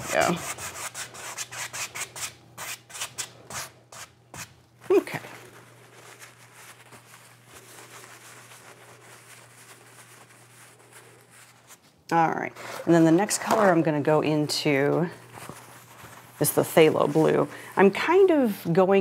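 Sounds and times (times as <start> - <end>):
brush scrubbing canvas: 0.0 - 18.4
brush rustling in paper towel: 4.0 - 19.0.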